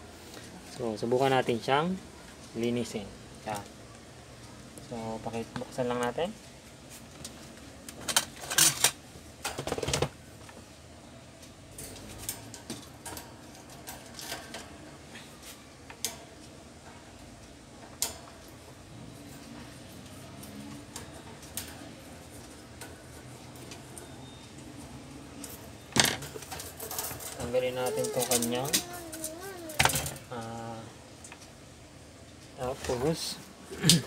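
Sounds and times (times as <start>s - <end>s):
fan guard clicks and rattles: 7.9s - 10.2s, 11.7s - 14.9s, 15.9s - 16.8s, 17.4s - 18.6s, 20.4s - 23.0s, 25.4s - 30.5s.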